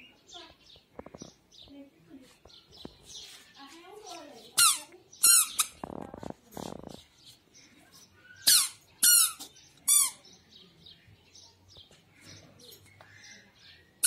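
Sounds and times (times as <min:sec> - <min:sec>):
soft scuffs on concrete: 0:02.2 - 0:04.5
squeaky shoes squeaking: 0:04.6 - 0:06.9, 0:08.2 - 0:10.2.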